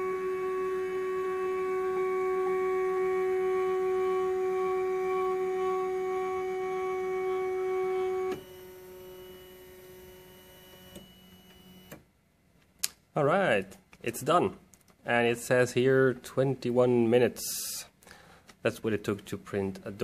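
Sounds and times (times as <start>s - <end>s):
three-d printer stepper motors whining: 0.0s - 12.0s
faint steady hum: 0.0s - 20.0s.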